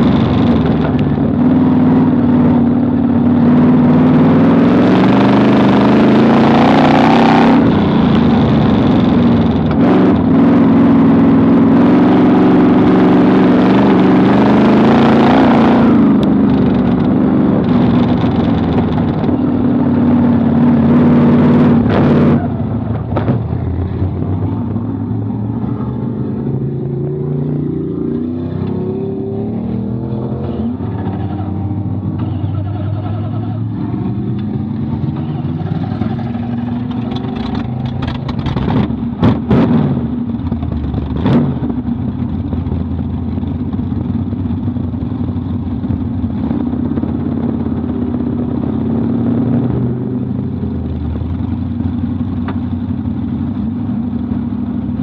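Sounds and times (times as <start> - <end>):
race car engine revving: 0.0 - 42.6.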